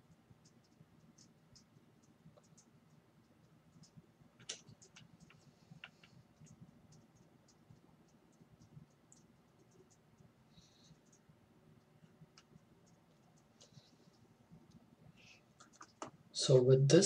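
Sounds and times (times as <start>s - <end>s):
faint clicks: 0.1s - 14.8s.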